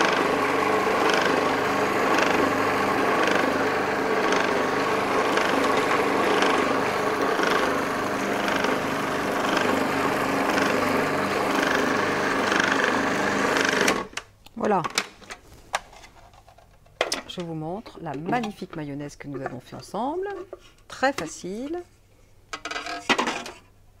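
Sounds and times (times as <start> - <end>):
food processor motor running: 0.0 - 14.1.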